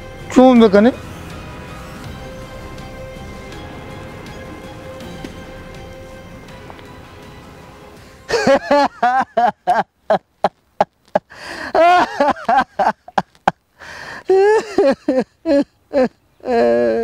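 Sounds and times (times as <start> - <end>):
background music: 0.0 - 9.8.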